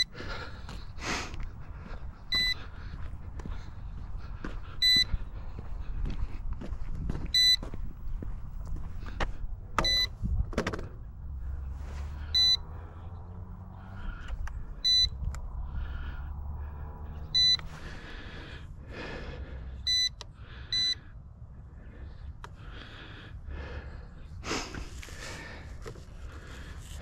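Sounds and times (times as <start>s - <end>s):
low rumble: 0.0s - 19.6s
high electronic beep: 2.3s - 2.6s, 7.4s - 7.6s, 9.8s - 10.2s, 12.3s - 12.7s, 14.8s - 15.2s, 17.3s - 17.7s.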